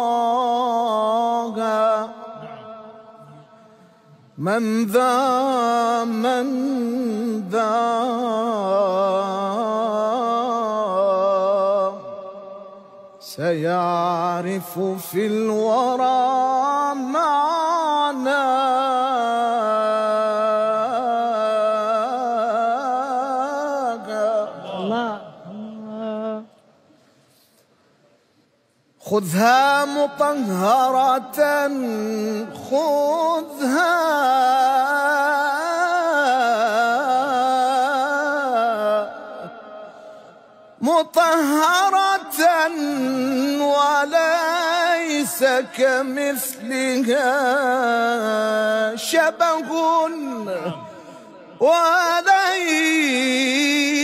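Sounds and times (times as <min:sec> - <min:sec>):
man singing unaccompanied: 0:00.0 - 0:03.2, 0:04.4 - 0:26.5, 0:29.0 - 0:39.7, 0:40.8 - 0:54.0
singer breathing: 0:39.8 - 0:40.7, 0:50.9 - 0:51.6.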